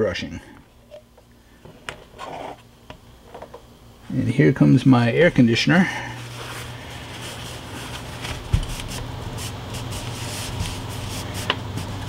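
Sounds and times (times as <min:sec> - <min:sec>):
air conditioner hum: 0:00.0 - 0:12.0
paper towel rustling: 0:05.2 - 0:12.0.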